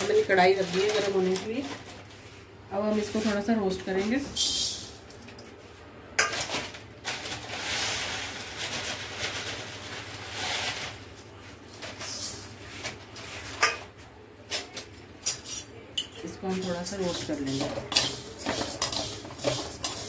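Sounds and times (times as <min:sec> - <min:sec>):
dry noodles pattering on metal: 0:00.0 - 0:02.1, 0:15.2 - 0:20.0.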